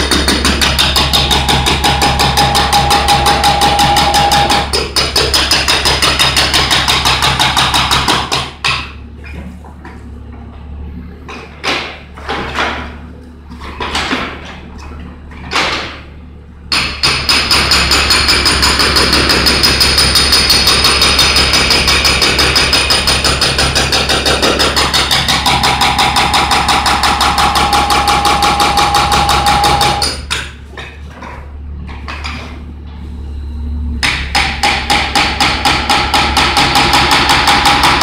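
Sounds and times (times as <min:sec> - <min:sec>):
hydraulic breaker hammering concrete: 0:00.0 - 0:09.0, 0:16.7 - 0:30.6, 0:34.0 - 0:38.0
steady ringing tone: 0:01.3 - 0:04.7, 0:27.3 - 0:30.1
diesel engine humming: 0:08.9 - 0:12.2, 0:19.2 - 0:36.5.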